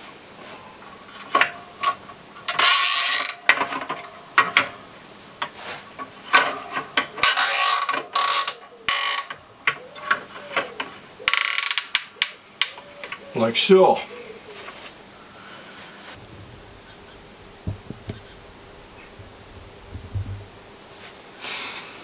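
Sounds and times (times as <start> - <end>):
handling clicks and knocks: 16.2 - 20.7
cable tie rasping: 16.2 - 20.8.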